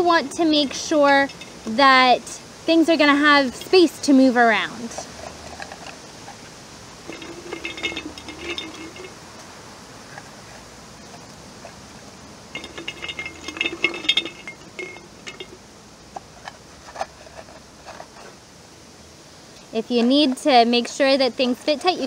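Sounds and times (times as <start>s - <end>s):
objects rattling in glass jar: 0.7s - 1.6s, 7.0s - 9.2s, 12.5s - 15.6s.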